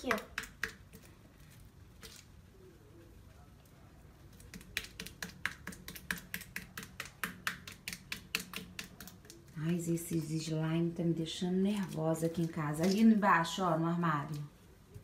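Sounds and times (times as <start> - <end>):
slime clicking and smacking: 0.0 - 1.1, 4.3 - 9.6.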